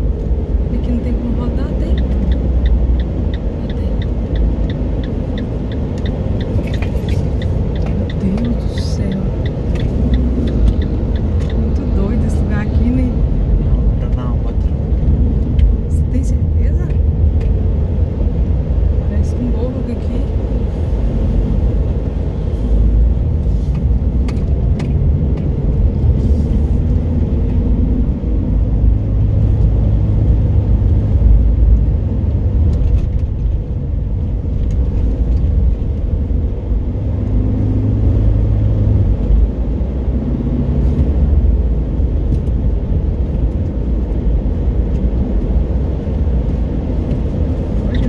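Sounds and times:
car engine and road noise: 0.0s - 48.0s.

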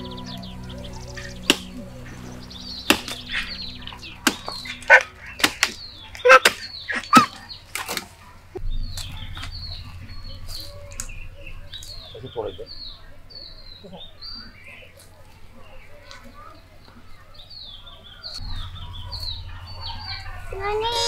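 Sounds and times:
birds chirping: 0.0s - 21.0s
blade chopping: 1.2s - 8.1s.

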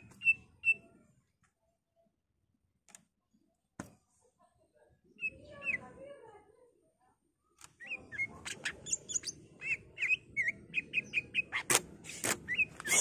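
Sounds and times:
bird chirping: 0.0s - 1.1s, 7.7s - 13.0s.

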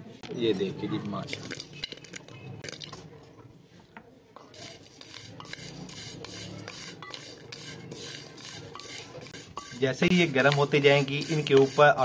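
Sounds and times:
wooden spatula scraping metal pan: 4.4s - 12.0s.

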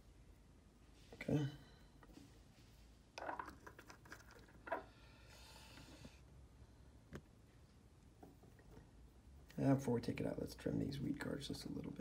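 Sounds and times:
soft scrapes: 2.0s - 3.0s.

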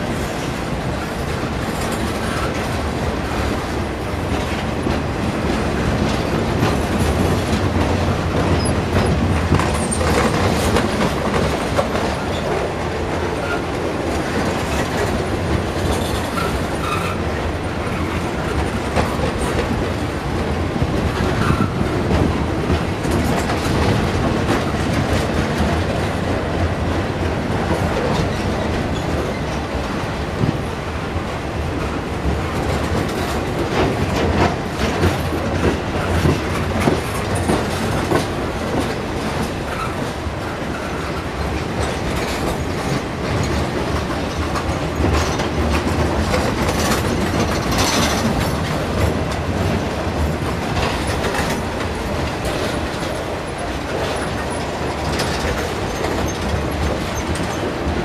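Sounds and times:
freight train wheels rumbling: 0.0s - 58.0s
wheels clicking over rail joints: 31.7s - 58.0s.

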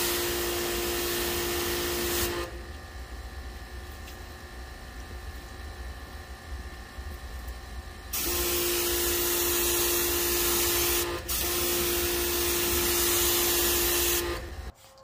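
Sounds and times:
pressure washer spraying: 0.0s - 2.5s, 8.2s - 14.7s.

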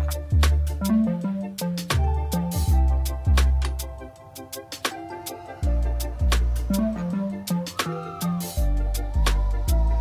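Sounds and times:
deep bass: 0.0s - 1.2s, 2.0s - 4.0s, 5.6s - 7.2s, 8.6s - 10.0s
background music with held notes: 0.0s - 10.0s.

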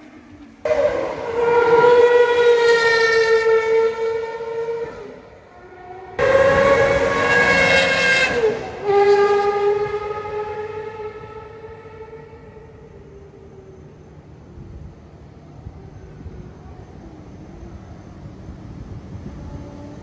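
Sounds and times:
high-revving car engine: 6.2s - 12.8s.

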